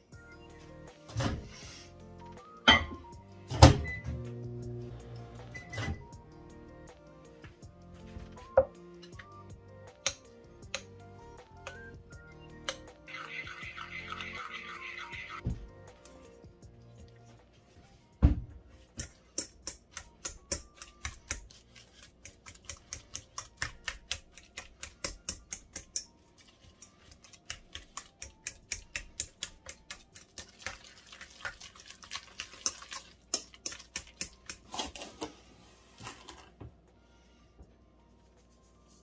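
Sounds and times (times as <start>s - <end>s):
fork clicking against metal bowl: 19.0s - 21.4s, 22.2s - 26.2s, 27.3s - 30.5s, 32.6s - 34.6s.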